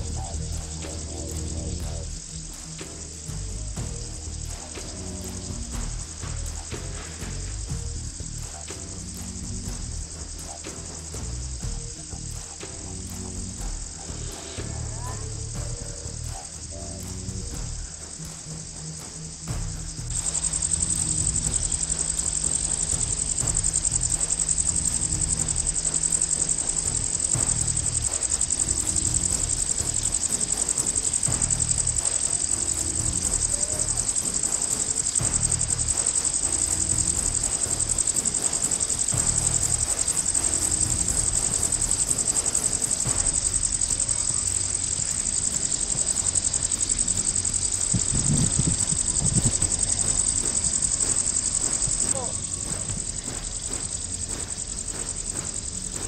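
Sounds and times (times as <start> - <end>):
insects chirring: 0.0 - 56.0
low rumble: 0.0 - 56.0.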